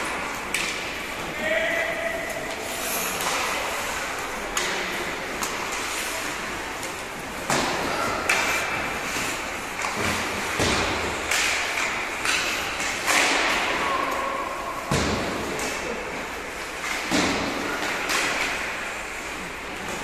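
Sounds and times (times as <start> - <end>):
hockey sticks and puck clacking: 0.0 - 20.0
people shouting: 1.2 - 2.4.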